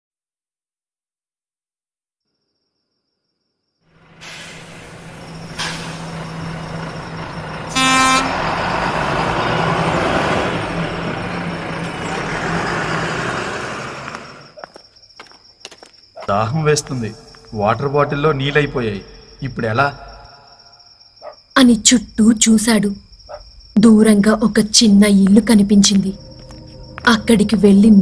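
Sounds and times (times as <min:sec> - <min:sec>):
bus engine running: 0:03.9 - 0:14.6
bus horn honk: 0:07.7 - 0:08.9.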